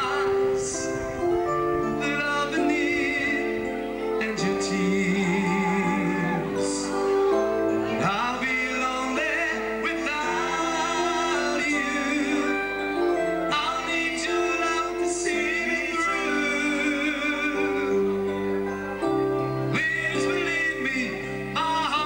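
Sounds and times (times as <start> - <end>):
man singing long wavering notes: 0.0 - 7.1
sustained instrumental chords: 0.0 - 22.0.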